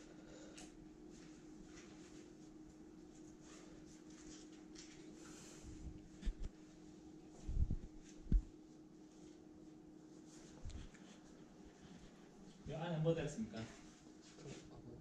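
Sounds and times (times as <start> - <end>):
steady low hum: 0.0 - 15.0
soft low thumps: 7.4 - 8.6.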